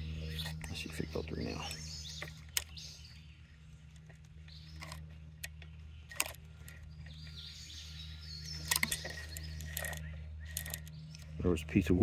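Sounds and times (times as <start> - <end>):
steady low hum: 0.0 - 12.0
chainsaw chain clicking: 8.5 - 11.3.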